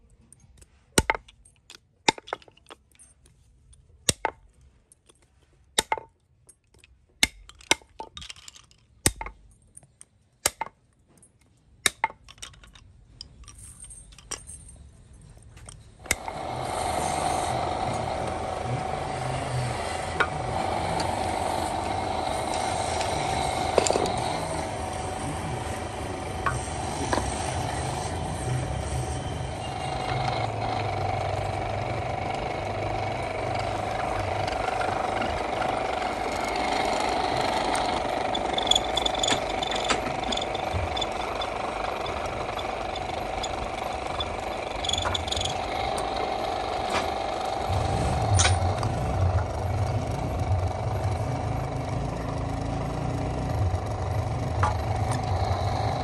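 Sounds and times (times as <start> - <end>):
rings clinking on wooden rods: 0.1 - 16.3, 33.6 - 49.0
small electric motor humming: 16.0 - 56.0.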